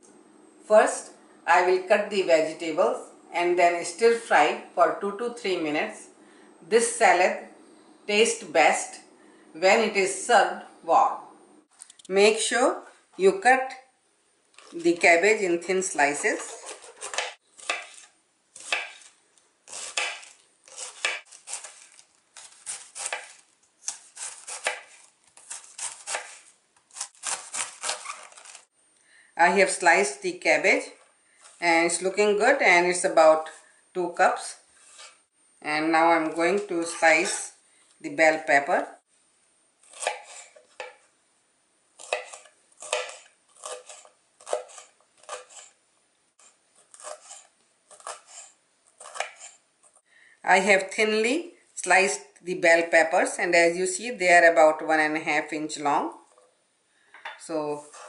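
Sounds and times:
knife slicing cabbage on board: 16.3 - 28.6, 39.8 - 41.0, 42.0 - 45.8, 46.4 - 49.6.

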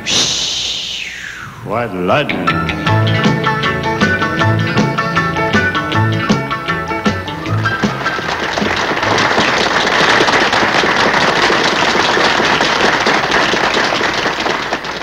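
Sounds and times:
audience applauding: 4.0 - 15.0.

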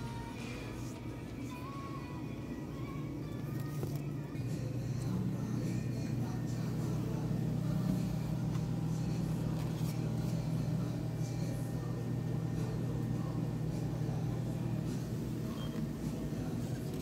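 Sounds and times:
refrigerated display case humming: 0.0 - 17.0.

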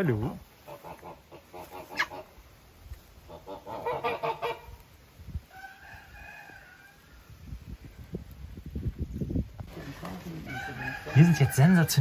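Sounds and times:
farmyard fowl calling: 0.0 - 7.4, 10.2 - 12.0.

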